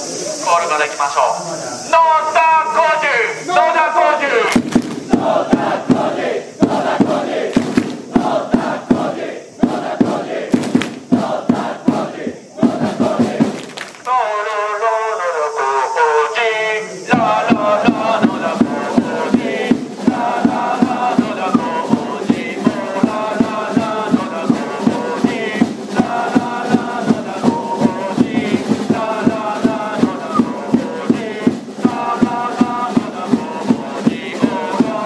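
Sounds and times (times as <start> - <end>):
crowd chanting in unison: 2.0 - 35.0
steady beat: 3.6 - 13.7, 17.1 - 35.0.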